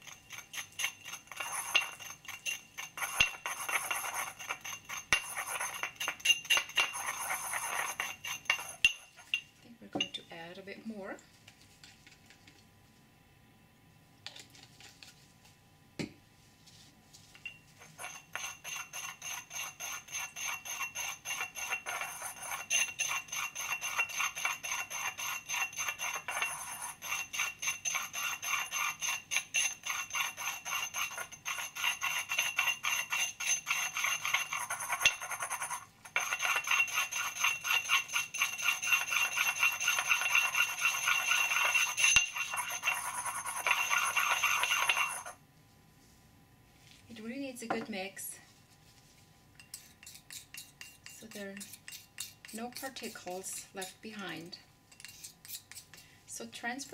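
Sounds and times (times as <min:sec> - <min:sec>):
pestle grinding in ceramic mortar: 0:00.0 - 0:10.2, 0:17.5 - 0:45.4, 0:49.6 - 0:54.2, 0:54.9 - 0:56.0.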